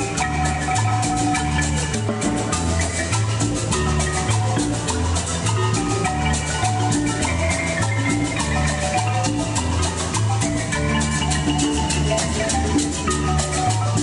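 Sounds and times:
congas: 0.0 - 14.0
marimba melody: 0.0 - 14.0
metal shaker: 0.0 - 14.0.

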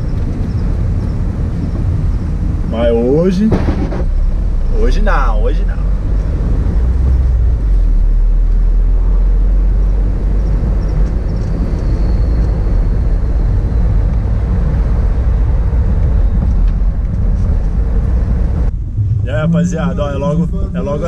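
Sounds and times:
engine and road rumble: 0.0 - 21.0
faint high whine: 18.7 - 21.0.

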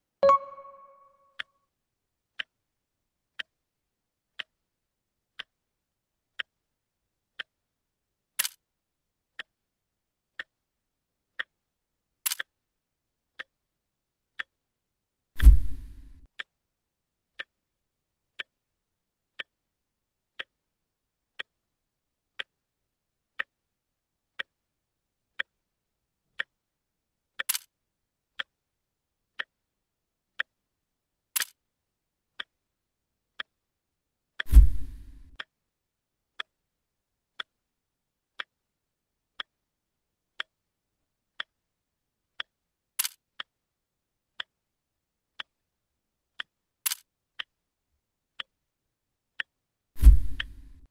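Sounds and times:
clock ticking: 0.2 - 1.5, 5.4 - 5.6, 20.3 - 20.6, 21.4 - 21.6, 22.4 - 22.6, 23.4 - 23.6, 24.4 - 24.6, 27.4 - 27.7, 29.4 - 29.6, 31.4 - 31.6, 34.4 - 35.5, 39.4 - 39.6, 42.4 - 43.5, 49.4 - 50.8
sharp clicks: 27.4 - 27.7, 31.4 - 31.6
heavy thump: 50.0 - 50.5.

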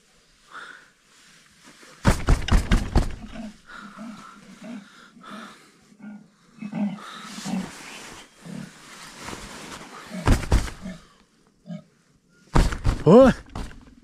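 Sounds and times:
loud knocks: 2.1 - 3.4, 10.3 - 10.8, 12.6 - 14.0
low grunting animal calls: 3.0 - 8.8.

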